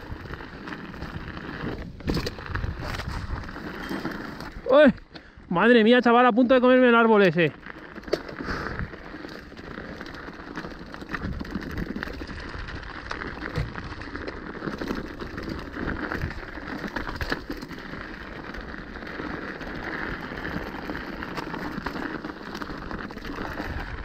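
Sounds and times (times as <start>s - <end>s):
bike knocks and rattles: 0.0s - 4.7s, 7.3s - 23.9s
tyres crunching on dirt and stones: 0.0s - 5.1s, 6.5s - 24.0s.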